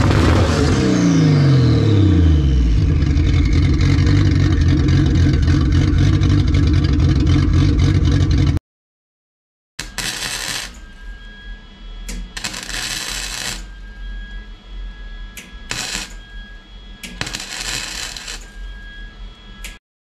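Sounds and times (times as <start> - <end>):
arc welding bursts: 9.8 - 11.0, 12.2 - 13.8, 15.7 - 16.2, 17.1 - 18.6.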